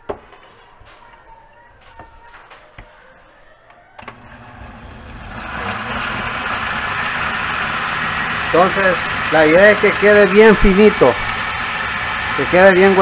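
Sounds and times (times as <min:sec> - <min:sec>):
blender motor running: 0:04.0 - 0:13.0.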